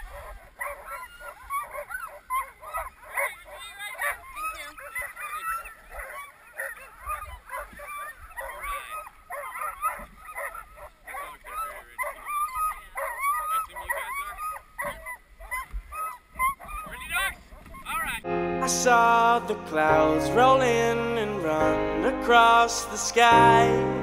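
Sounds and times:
sled dogs yelping and barking: 0:00.0 - 0:18.3.

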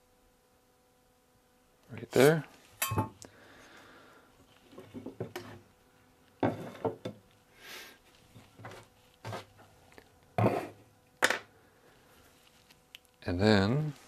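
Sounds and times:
rubbing sound: 0:08.2 - 0:09.7.

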